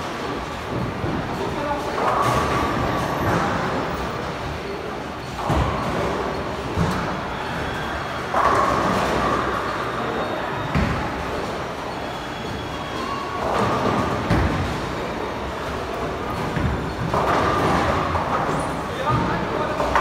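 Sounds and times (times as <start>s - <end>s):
bowling balls rolling: 5.3s - 20.0s.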